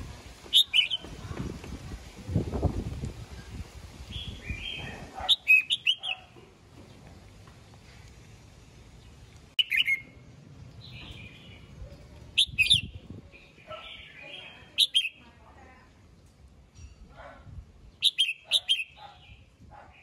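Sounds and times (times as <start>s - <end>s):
bird singing: 0.5s - 1.1s, 4.2s - 7.0s, 9.0s - 15.2s, 18.0s - 19.5s.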